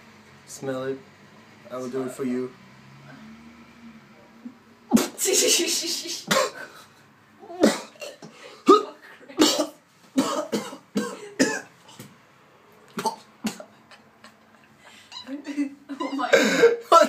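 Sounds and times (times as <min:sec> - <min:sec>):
man coughing: 0:06.2 - 0:06.8, 0:07.5 - 0:11.7, 0:13.0 - 0:13.8.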